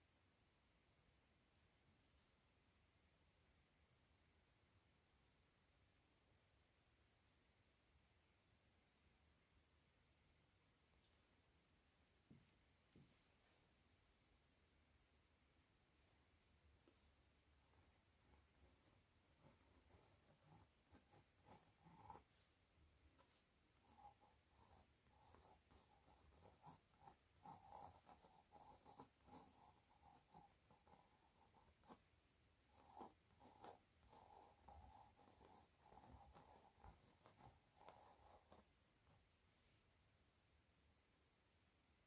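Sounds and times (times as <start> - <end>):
pencil scratching on canvas: 16.8 - 38.7.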